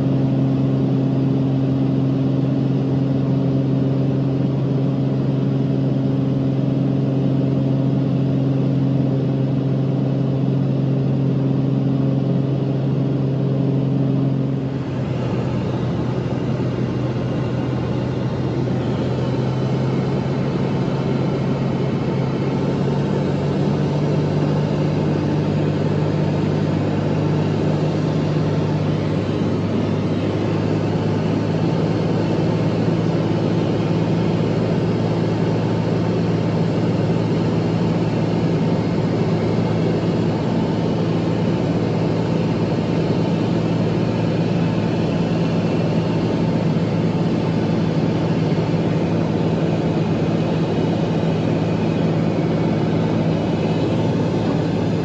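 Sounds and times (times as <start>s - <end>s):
propeller plane engine droning: 0.0s - 55.0s
airflow noise: 45.8s - 55.0s.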